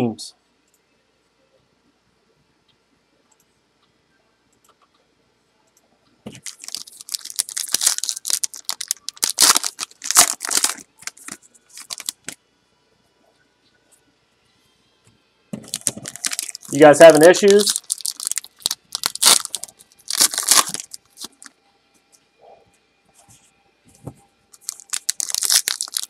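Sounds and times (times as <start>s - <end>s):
foil wrappers crinkling and tearing: 6.3s - 12.4s, 15.6s - 21.5s, 24.6s - 26.0s.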